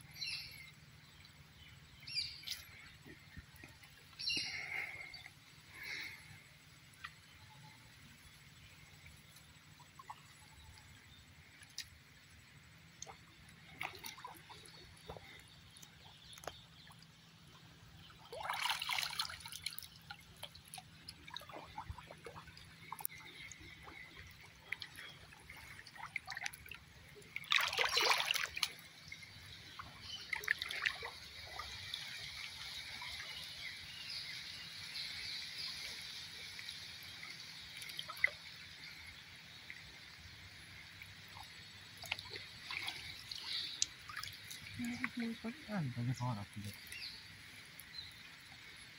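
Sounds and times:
water dripping and trickling: 0.0 - 7.4, 8.1 - 48.9
splashes from wading: 9.6 - 17.1, 18.0 - 48.9.

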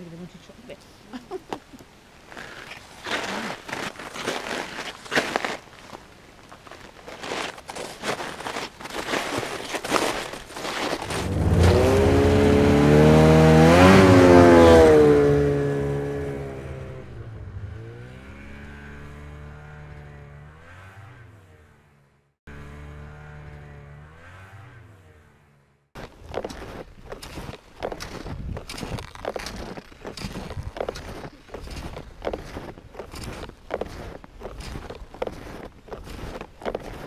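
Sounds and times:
footsteps crunching in snow: 2.2 - 16.2, 26.0 - 37.0
snowmobile engine: 10.7 - 26.7.

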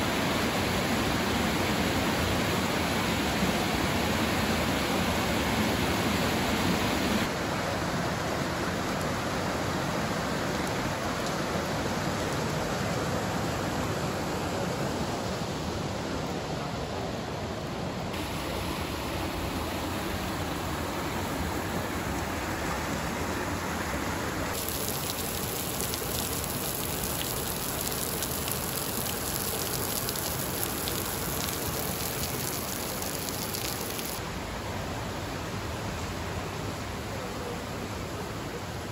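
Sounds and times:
stream and small waterfall rushing: 0.0 - 38.9
water dripping into pool: 24.5 - 34.2.

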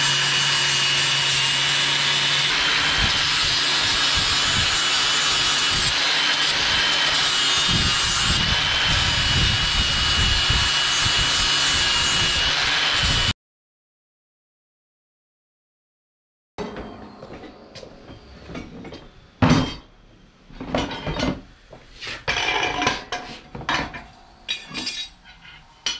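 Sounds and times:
power tool scraping rusty metal: 0.0 - 13.3.

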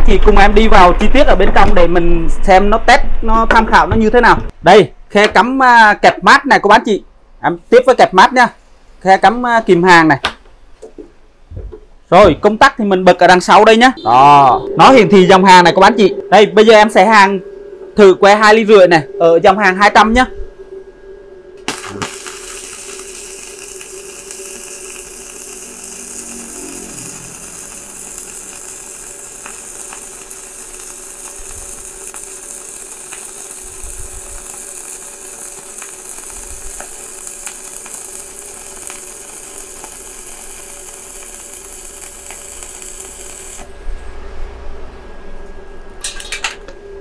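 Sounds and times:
welding arc crackling: 21.6 - 43.8.

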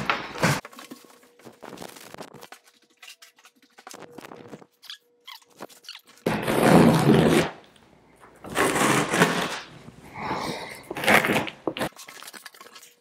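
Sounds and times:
cardboard box scraping on wood: 8.5 - 9.7.

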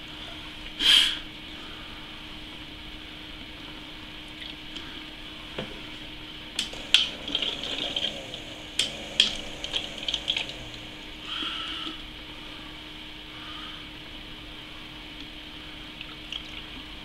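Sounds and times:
coolant gurgling through tubing: 6.6 - 12.1, 15.9 - 17.0.

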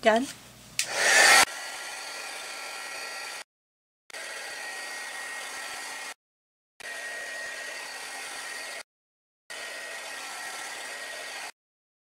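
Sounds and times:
heat gun blowing: 0.8 - 3.5, 4.1 - 6.2.

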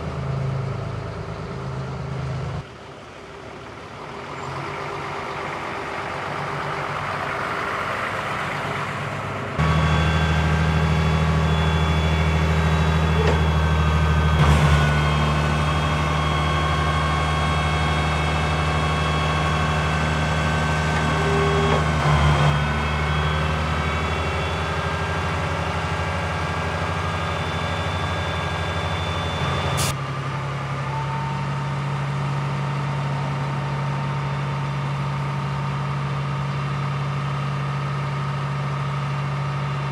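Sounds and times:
diesel engine running: 0.0 - 39.9
hydraulic whine: 8.4 - 32.0.

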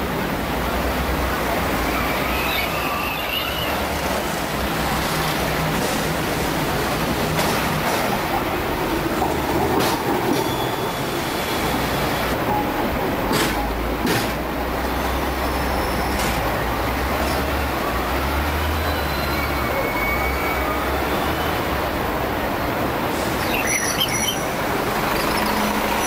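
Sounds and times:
tram wheels rumbling on rail: 0.0 - 26.0
clicks over rail joints: 9.1 - 10.5, 13.2 - 14.4
faint wheel squeal: 18.8 - 21.6.

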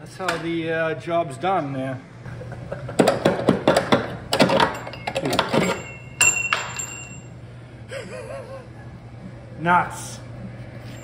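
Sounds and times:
ringing metal clink: 4.7 - 7.3.

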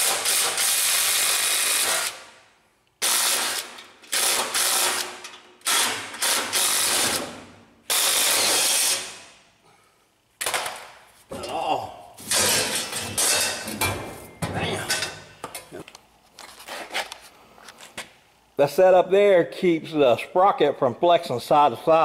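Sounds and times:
impact wrench hammering on bolts: 0.0 - 2.2, 3.0 - 9.3.

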